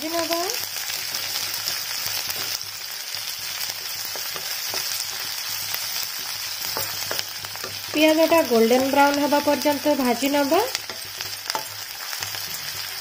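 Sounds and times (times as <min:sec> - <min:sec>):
onions sizzling in oil: 0:00.0 - 0:13.0
spatula scraping pan: 0:03.7 - 0:13.0.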